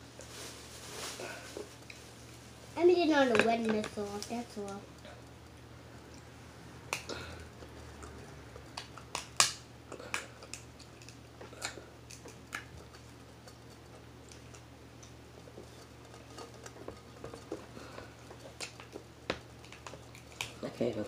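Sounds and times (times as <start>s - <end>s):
eating sounds: 4.7s - 21.0s.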